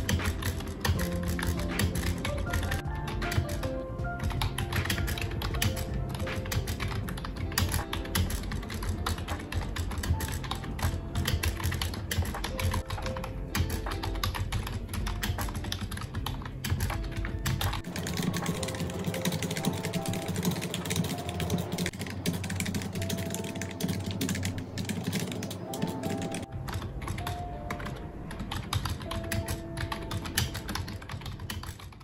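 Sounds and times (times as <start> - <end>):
background music: 0.0 - 32.0
keyboard typing clicks: 0.0 - 32.0.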